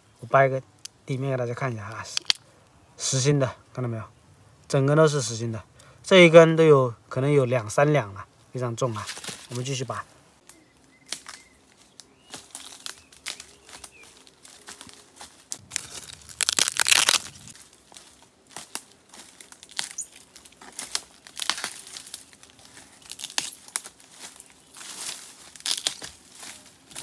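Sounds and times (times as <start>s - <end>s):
bamboo shoots snapping: 1.8s - 2.5s, 9.0s - 9.6s, 10.4s - 27.0s
dry leaves crackling and rustling: 8.4s - 27.0s.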